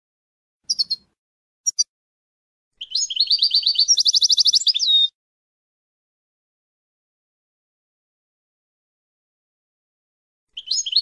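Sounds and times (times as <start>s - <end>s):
goldfinch song with fast trill: 0.7s - 1.1s, 1.7s - 1.9s, 2.8s - 5.1s, 10.6s - 11.0s.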